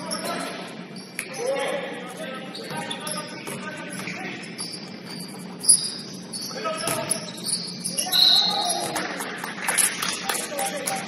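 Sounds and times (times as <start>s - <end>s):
sneaker squeaks on court: 0.0s - 1.5s, 2.5s - 9.1s
players calling out: 5.6s - 9.4s.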